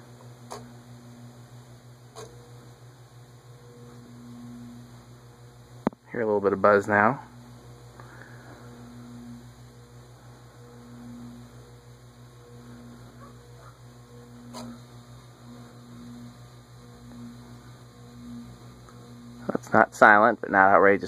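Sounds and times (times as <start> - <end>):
ceiling fan motor buzzing: 0.0 - 21.0.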